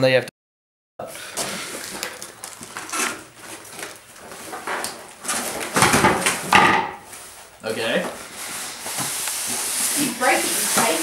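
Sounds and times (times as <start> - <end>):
knock: 5.8 - 7.0.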